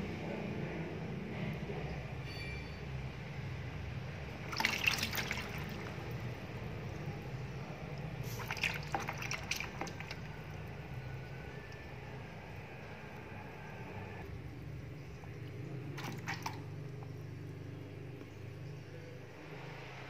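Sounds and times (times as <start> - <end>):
steady low hum: 0.0 - 20.0
water dripping into plastic basin: 4.4 - 12.0, 15.3 - 17.2.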